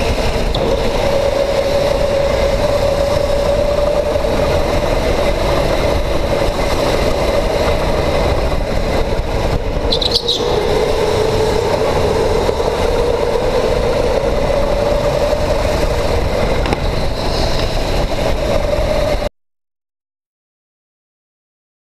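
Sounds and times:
electric go-kart motor whine: 0.0 - 19.3
heavy rumble: 0.0 - 19.3
short high squeal: 9.9 - 10.7.

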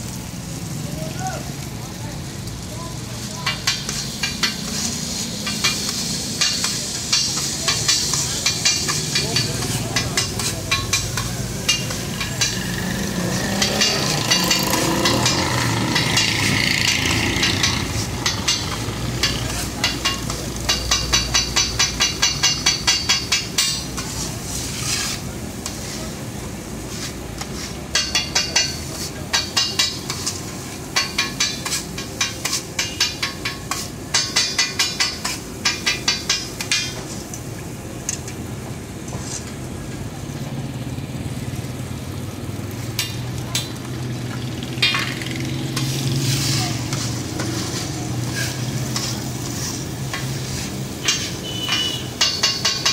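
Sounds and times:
food sizzling on griddle: 0.0 - 52.9
metal spatula scraping griddle: 3.2 - 37.3, 39.0 - 39.6, 44.8 - 52.9
rapid clanking strikes: 3.5 - 24.2.

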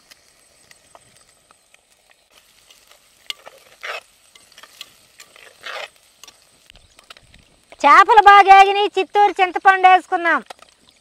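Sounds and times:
fish sizzling in oil: 0.0 - 11.0
stirring in pot: 2.5 - 7.8.

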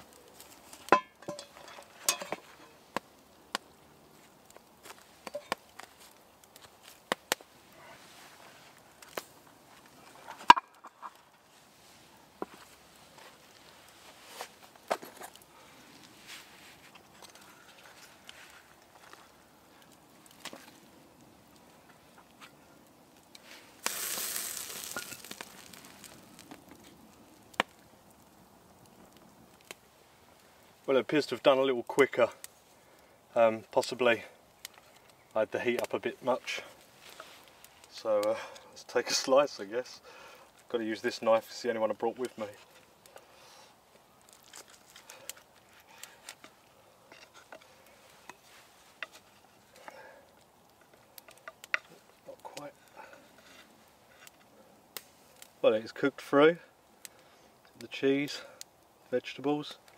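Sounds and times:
bacon fat sizzling: 23.4 - 30.9.

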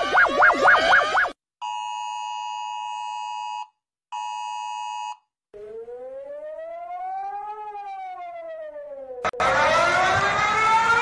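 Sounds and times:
electronic siren wailing: 0.0 - 1.4, 5.6 - 11.0.

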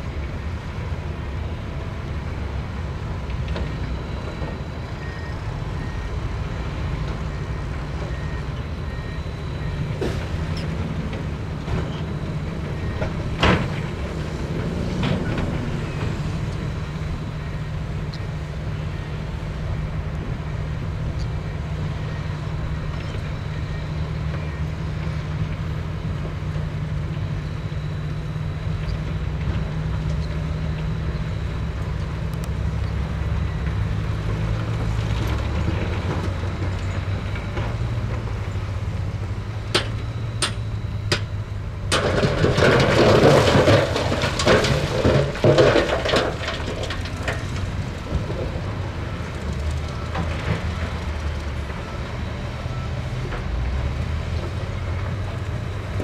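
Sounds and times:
diesel engine running: 0.0 - 56.0.

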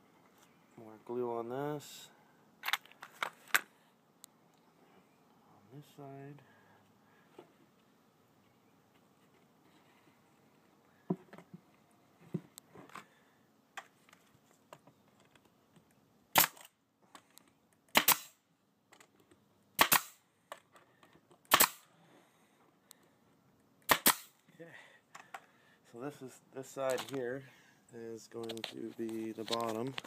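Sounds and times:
nail gun shots into wood: 16.3 - 16.7, 17.9 - 18.4, 19.8 - 20.2, 21.5 - 21.9, 23.8 - 24.4.

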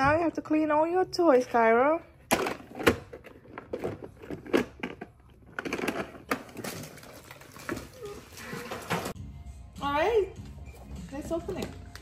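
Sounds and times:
toys clattering and knocking: 2.3 - 8.0.

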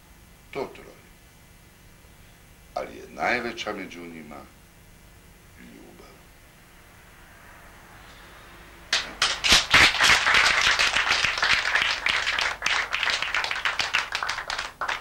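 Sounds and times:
audience applauding: 8.9 - 15.0.

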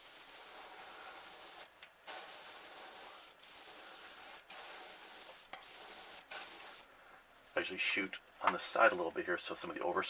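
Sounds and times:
airbrush hissing: 0.0 - 6.9.

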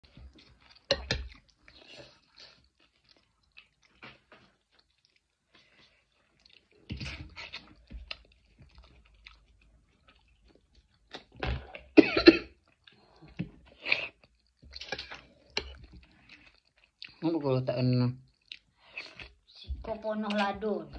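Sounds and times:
chewing and slurping pasta: 0.0 - 17.3, 18.2 - 19.6
person coughing: 12.0 - 12.6.

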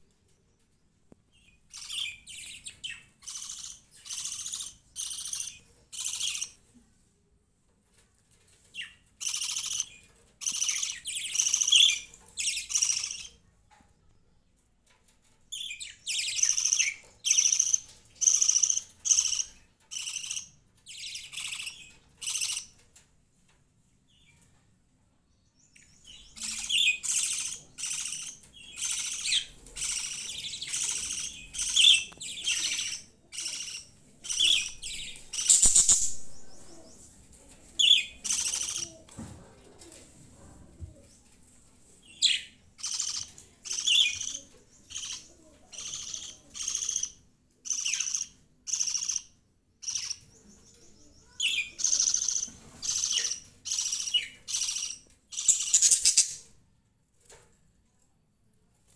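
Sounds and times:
budgerigars chirping: 1.7 - 6.6, 9.2 - 13.3, 15.6 - 22.7, 26.4 - 35.9, 37.8 - 39.0, 42.2 - 50.2, 51.4 - 56.4.

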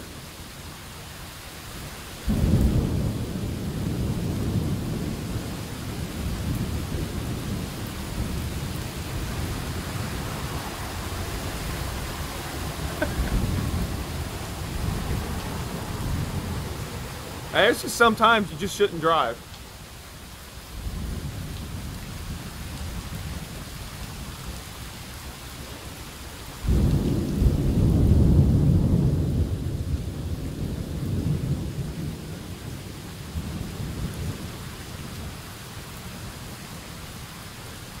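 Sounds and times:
heavy rain: 0.0 - 38.0
thunder rumbling: 2.3 - 19.5, 26.6 - 35.2.

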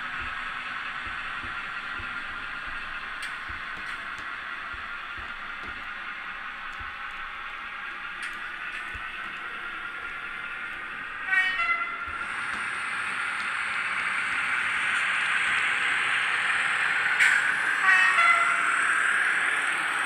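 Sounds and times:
model train diesel engine sound: 0.0 - 20.0
train horn blasts: 11.2 - 12.2, 17.8 - 18.7.

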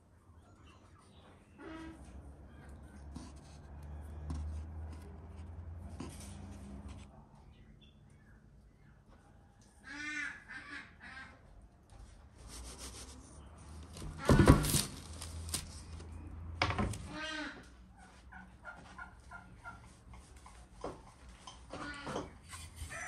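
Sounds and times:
poultry calling: 9.8 - 11.5
paper rustling: 13.7 - 16.1.

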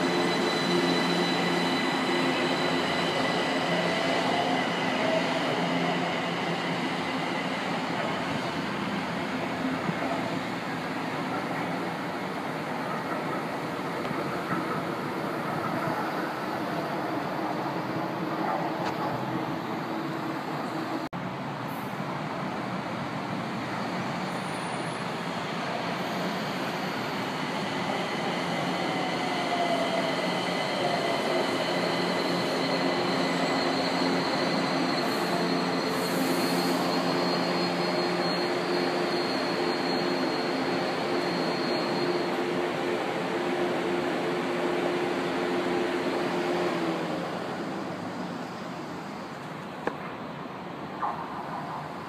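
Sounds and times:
high-pitched whine: 0.0 - 8.9
train electric drive whine: 0.0 - 21.1, 25.4 - 50.0.

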